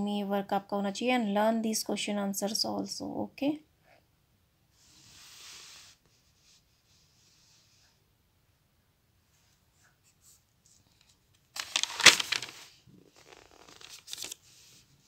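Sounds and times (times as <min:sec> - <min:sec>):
paper page rustling: 0:10.6 - 0:14.8.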